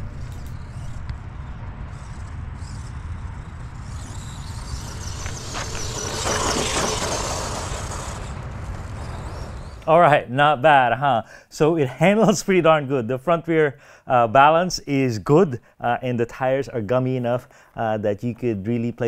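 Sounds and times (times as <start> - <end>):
electric motor whine: 0.0 - 9.8
tyres on grass and dirt: 0.0 - 10.2
steady low rumble: 0.0 - 10.9.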